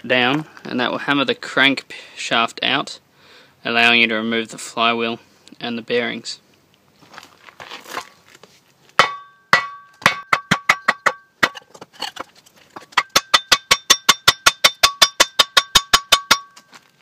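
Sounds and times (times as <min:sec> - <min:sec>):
hammer blows on wooden block: 0:09.0 - 0:11.6, 0:13.0 - 0:16.7.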